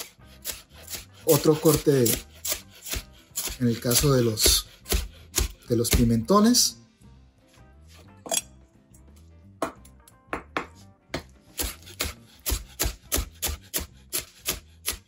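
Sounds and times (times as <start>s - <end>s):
knife chopping on plastic board: 0.0s - 6.2s, 10.4s - 15.0s.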